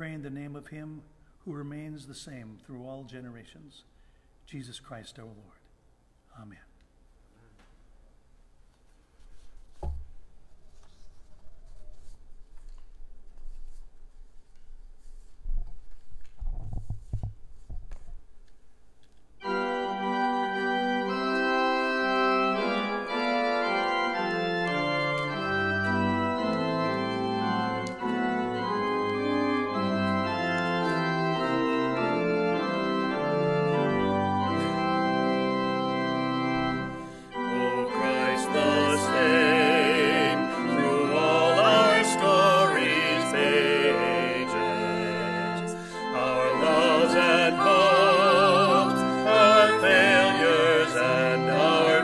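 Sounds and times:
organ playing hymn chords: 0:19.4 - 0:52.0.

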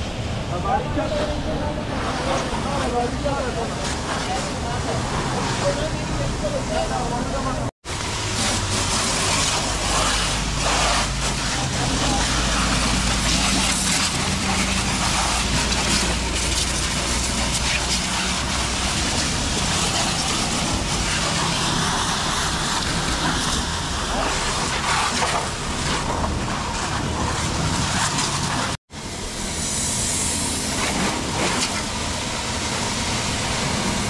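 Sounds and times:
pressure washer spraying water: 0:07.8 - 0:34.0.

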